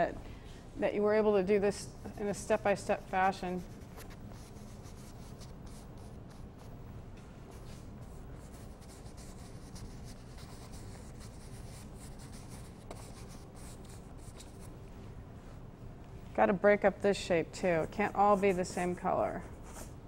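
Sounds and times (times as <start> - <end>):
steady low hum: 0.0 - 20.0
paintbrush scrubbing canvas: 2.0 - 6.8, 7.5 - 14.7, 17.8 - 20.0.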